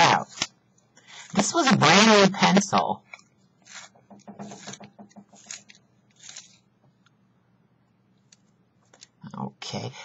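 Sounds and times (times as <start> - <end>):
pencil sharpener scraping: 3.6 - 6.6.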